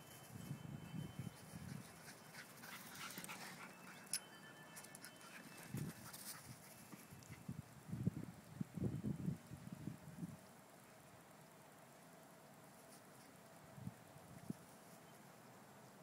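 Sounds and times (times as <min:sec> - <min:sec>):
dogs panting: 0:01.6 - 0:07.4.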